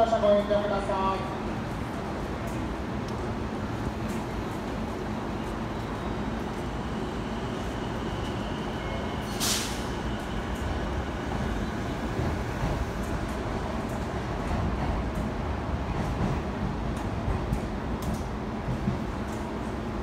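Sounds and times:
railway platform rumble: 0:00.0 - 0:20.0
air brakes hissing: 0:09.2 - 0:10.1.

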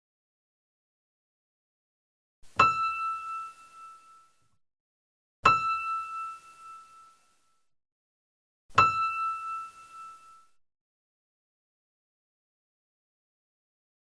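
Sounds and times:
bell-like chime: 0:02.6 - 0:04.6, 0:05.5 - 0:07.7, 0:08.8 - 0:10.6.

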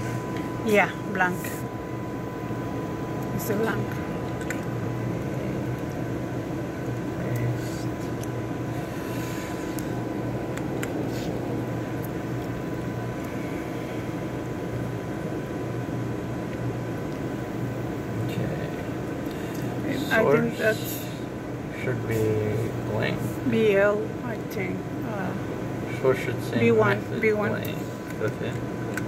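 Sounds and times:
ventilation and equipment hum: 0:00.0 - 0:29.0.

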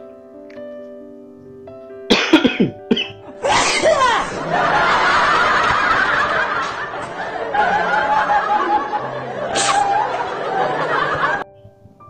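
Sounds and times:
music: 0:00.0 - 0:12.0
snickering laughter: 0:03.8 - 0:11.4.

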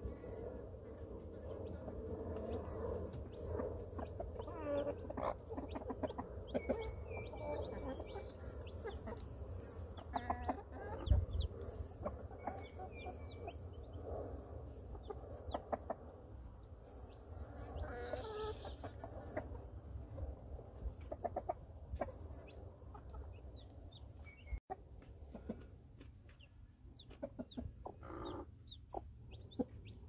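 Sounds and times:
chicks peeping: 0:00.0 - 0:30.0
hen clucking low: 0:10.0 - 0:13.6.

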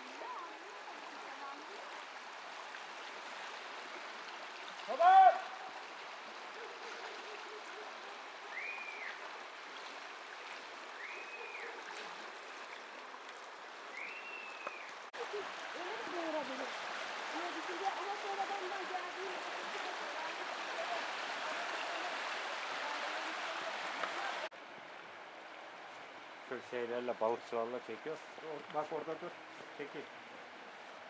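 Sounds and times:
river water flowing: 0:00.0 - 0:31.0
whistle-like calls: 0:08.5 - 0:09.2, 0:11.0 - 0:11.8, 0:13.9 - 0:14.9.

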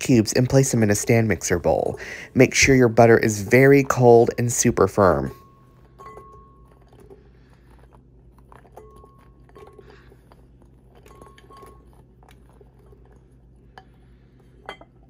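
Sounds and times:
low steady hum: 0:00.0 - 0:15.0
glass bowl clinking: 0:05.3 - 0:06.8, 0:11.0 - 0:11.8, 0:14.6 - 0:15.0.

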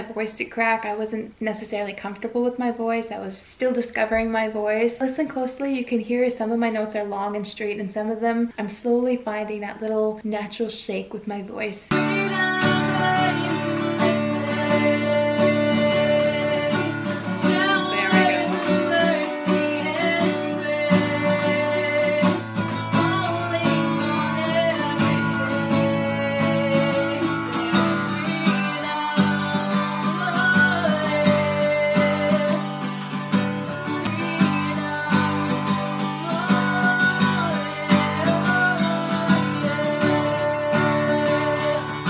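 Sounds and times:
woman singing softly: 0:11.9 - 0:32.9, 0:33.8 - 0:42.0
strummed acoustic guitar: 0:11.9 - 0:42.0.

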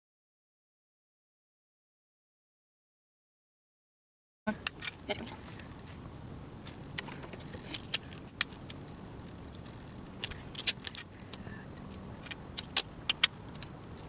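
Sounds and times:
sharp clicks: 0:12.2 - 0:14.0.

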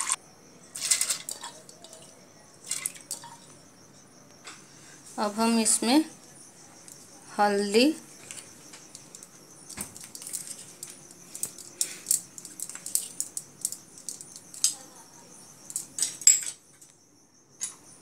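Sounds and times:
spoons clicking and scraping: 0:00.0 - 0:03.6, 0:08.2 - 0:15.0, 0:15.6 - 0:16.9.

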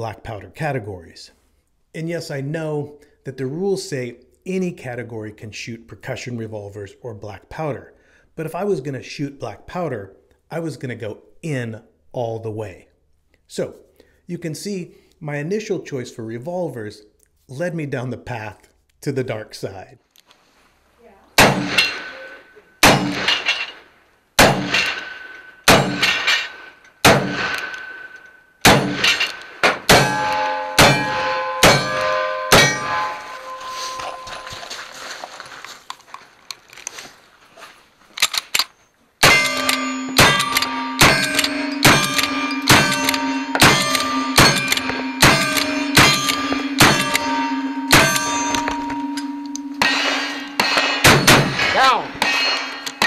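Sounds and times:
rifle shots: 0:21.4 - 0:22.0, 0:22.8 - 0:23.5, 0:24.4 - 0:25.1, 0:25.7 - 0:27.8, 0:28.6 - 0:30.2, 0:39.2 - 0:47.3, 0:49.8 - 0:53.0
steel targets clanging: 0:21.4 - 0:35.0, 0:39.2 - 0:53.0.

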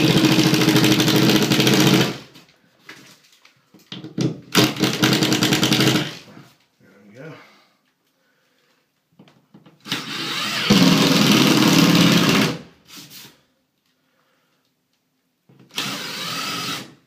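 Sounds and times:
cordless drill driving screws: 0:09.8 - 0:12.6, 0:15.7 - 0:17.0.

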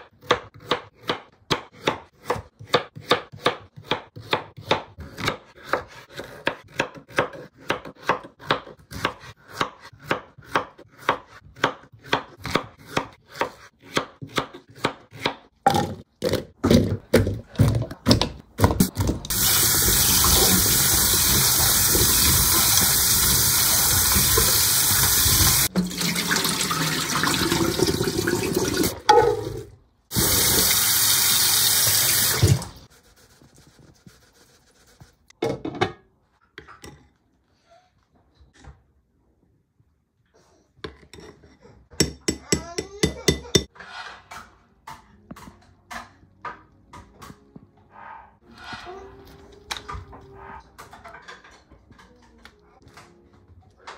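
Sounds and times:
knife chopping on wooden board: 0:00.1 - 0:15.9
tap water running into pot: 0:19.3 - 0:29.0, 0:30.1 - 0:32.8.

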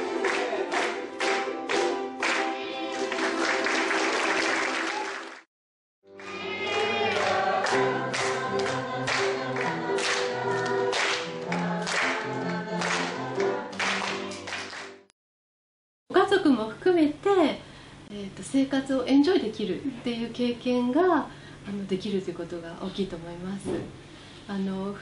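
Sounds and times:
group singing with instruments: 0:00.0 - 0:04.0, 0:06.2 - 0:14.7
audience clapping in time: 0:00.0 - 0:05.5, 0:06.2 - 0:15.1.

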